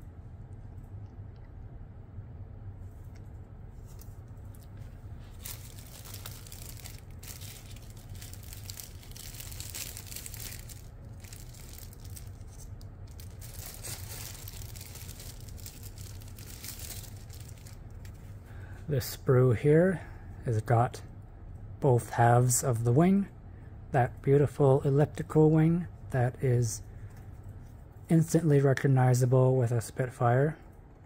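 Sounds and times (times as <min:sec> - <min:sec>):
steady low hum: 0:00.0 - 0:31.0
plastic bags crinkling: 0:03.8 - 0:18.3.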